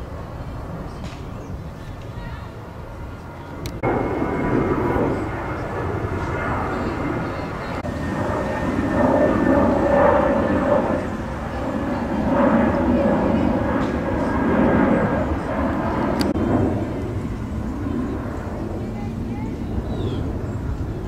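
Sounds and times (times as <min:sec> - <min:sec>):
people's voices: 0:04.4 - 0:08.5, 0:10.6 - 0:20.9.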